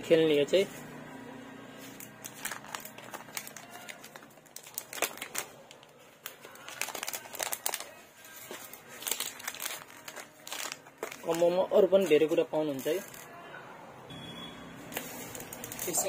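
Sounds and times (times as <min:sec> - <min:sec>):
plastic packet crinkling: 0:01.9 - 0:13.3, 0:14.9 - 0:16.0.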